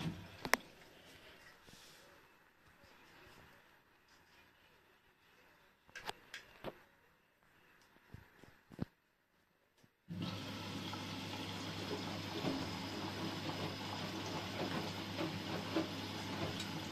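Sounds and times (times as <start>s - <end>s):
water rushing into washing machine: 0.0s - 1.0s, 10.1s - 16.9s
washing machine hum: 0.0s - 2.2s, 10.1s - 16.9s.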